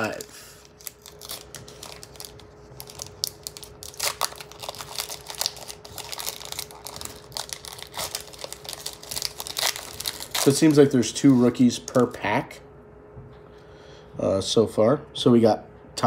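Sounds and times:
foil wrapper tearing and crinkling: 0.0 - 12.1.

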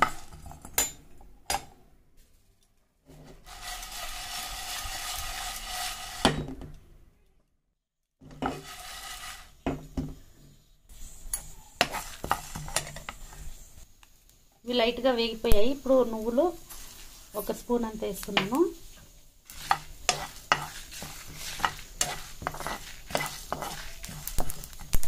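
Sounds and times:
lentils rattling in a pan: 3.4 - 6.3, 8.4 - 9.6, 15.8 - 25.0.

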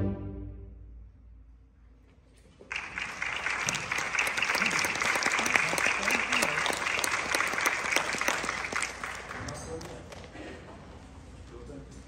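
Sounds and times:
audience applause: 2.6 - 10.5.

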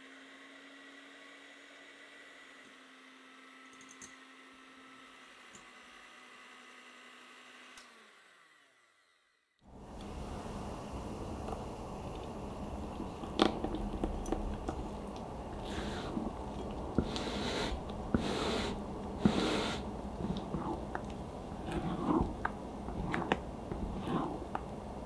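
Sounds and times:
spatula squishing cream: 12.0 - 25.0.

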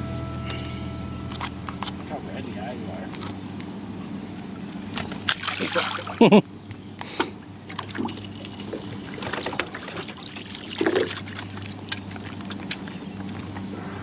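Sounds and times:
steady low hum: 0.0 - 14.0
water lapping against boat: 4.8 - 14.0.

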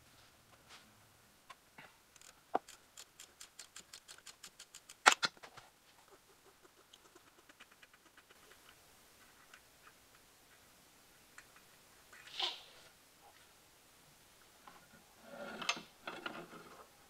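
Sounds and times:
ratchet wrench clicking: 2.2 - 5.1.

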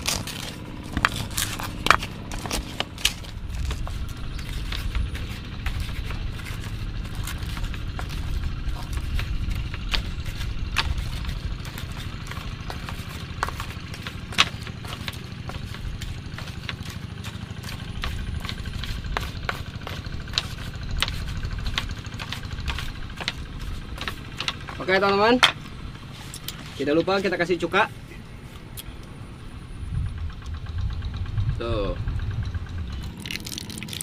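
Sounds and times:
steady low rumble: 0.0 - 34.0
pestle clacking in mortar: 1.0 - 25.6.

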